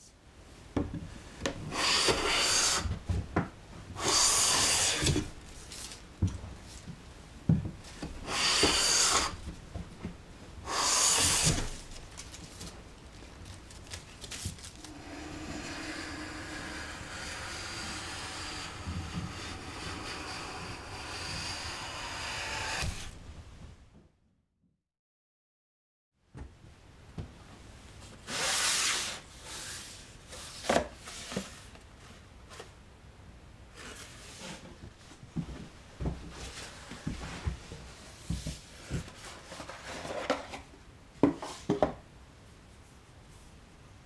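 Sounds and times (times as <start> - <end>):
steady hiss: 0.1 - 3.2, 3.9 - 23.4
hand plane shaving wood: 1.7 - 2.9, 4.0 - 5.3, 8.2 - 9.4, 10.7 - 11.8, 14.8 - 23.2.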